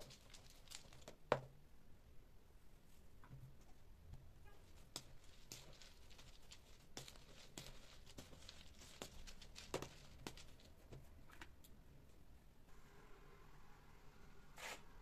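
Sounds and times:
metal spoon scraping powder: 4.6s - 10.7s.

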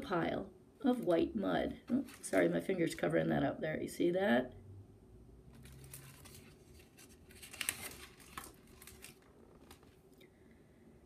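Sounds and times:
paper pages rustling and turning: 1.9s - 2.7s, 5.5s - 10.1s.

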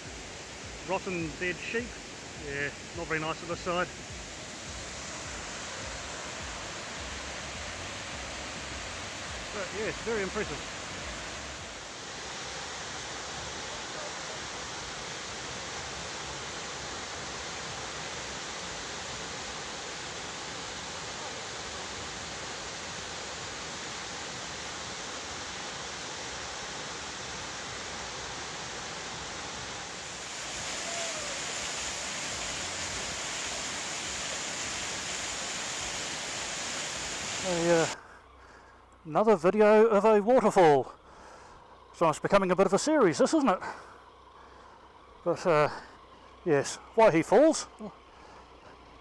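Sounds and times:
waterfall rushing: 0.0s - 38.0s.

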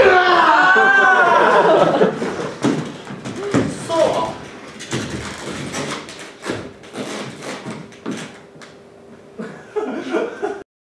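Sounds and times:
footsteps on wooden floor: 2.3s - 8.5s
person speaking: 3.4s - 4.6s.

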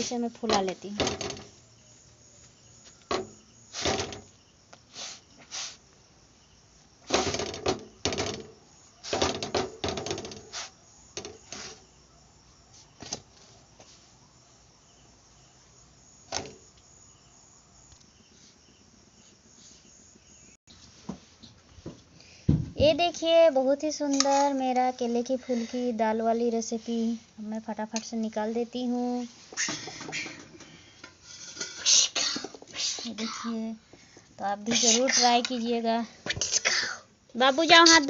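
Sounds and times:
faint steady hiss: 0.0s - 38.0s.

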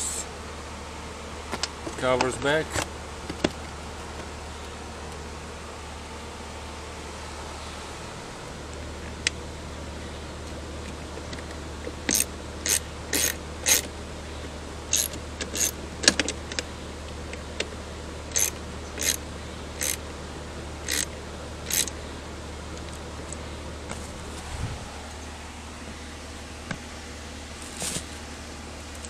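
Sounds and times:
socket ratchet clicking: 12.1s - 13.9s, 14.9s - 15.7s, 18.3s - 19.2s, 19.8s - 20.0s, 20.9s - 21.1s, 21.7s - 21.9s.

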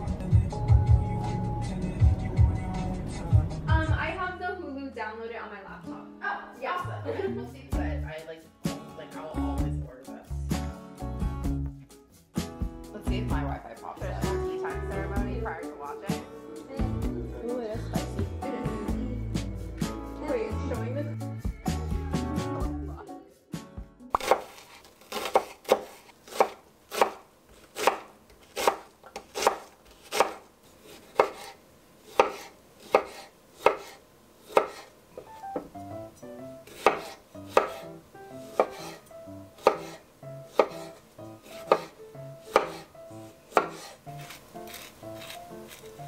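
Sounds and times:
soft music: 0.0s - 25.4s, 35.2s - 46.0s
knife chopping on wooden board: 24.1s - 34.9s, 36.7s - 37.9s, 38.5s - 39.0s, 39.6s - 42.9s, 43.5s - 46.0s.

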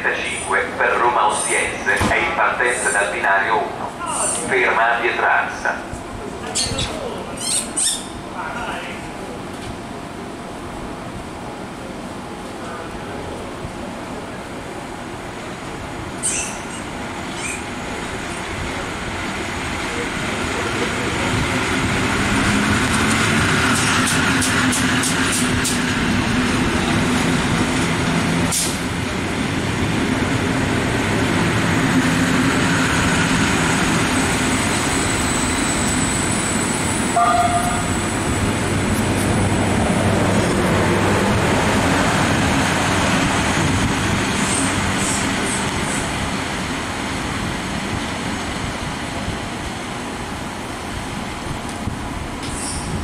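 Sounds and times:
train wheels rumbling: 13.4s - 53.0s
short tone: 37.1s - 38.0s.

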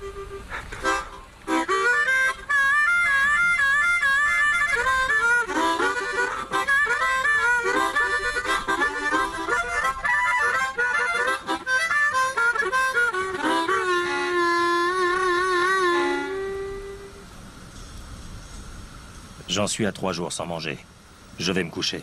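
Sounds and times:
harmonica playing chords: 0.0s - 17.2s.

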